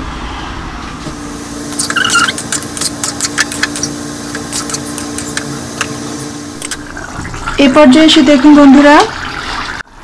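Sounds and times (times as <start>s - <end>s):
brief squeak: 1.8s - 2.5s.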